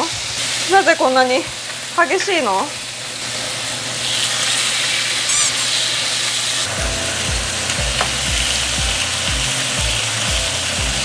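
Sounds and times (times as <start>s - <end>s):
meat sizzling in oil: 0.0s - 11.0s
background music with low beat: 6.7s - 11.0s.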